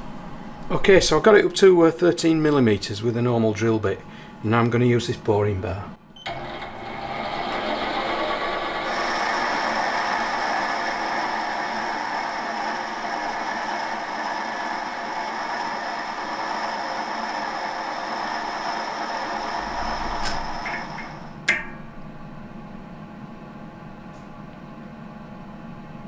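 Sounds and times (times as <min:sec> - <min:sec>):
metal lathe whirring with whine: 0:06.3 - 0:21.5.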